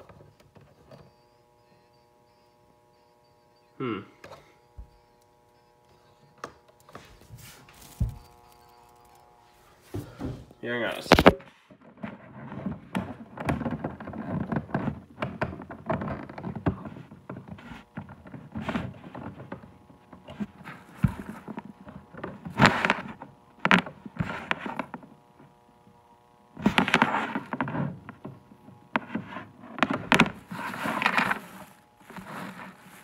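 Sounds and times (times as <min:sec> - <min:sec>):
faint steady hum: 0:00.0 - 0:33.0
crackling speaker noise: 0:10.6 - 0:11.5.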